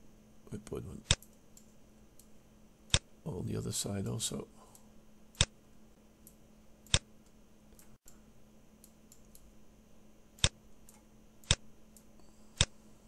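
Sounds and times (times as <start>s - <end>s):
computer mouse clicking: 1.0s - 2.3s, 6.2s - 8.2s, 8.8s - 9.5s, 10.4s - 12.8s.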